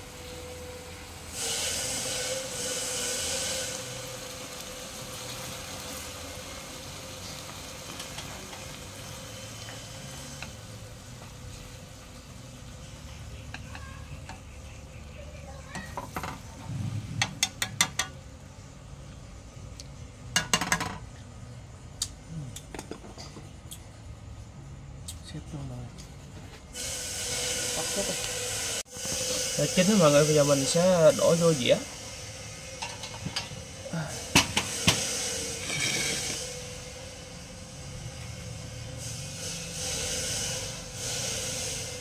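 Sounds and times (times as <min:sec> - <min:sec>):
fish frying in bubbling oil: 0:00.0 - 0:18.2.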